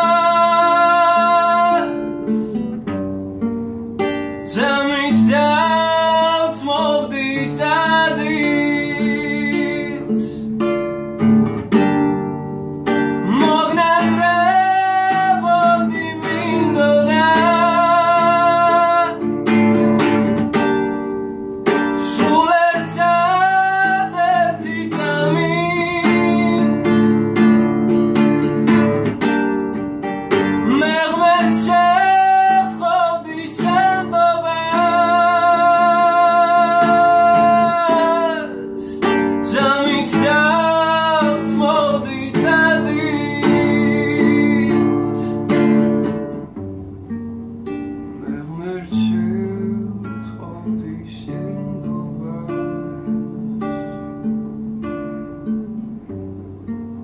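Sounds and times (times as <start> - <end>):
man singing: 0.0 - 2.8, 4.4 - 10.6, 13.1 - 20.6, 21.7 - 27.6, 30.3 - 45.8, 48.2 - 53.7
strummed classical guitar: 0.0 - 57.0.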